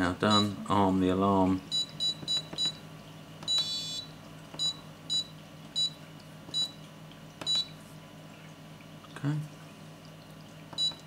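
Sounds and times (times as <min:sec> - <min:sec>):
piezo buzzer beeping: 0:01.7 - 0:02.8, 0:03.4 - 0:06.8.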